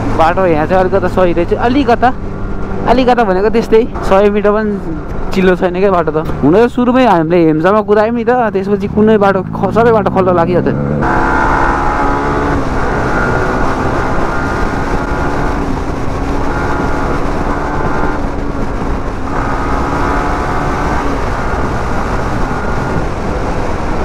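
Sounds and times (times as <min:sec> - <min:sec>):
heavy wind noise: 0:00.0 - 0:24.0
road rumble: 0:00.0 - 0:24.0
motorcycle engine running: 0:08.5 - 0:24.0.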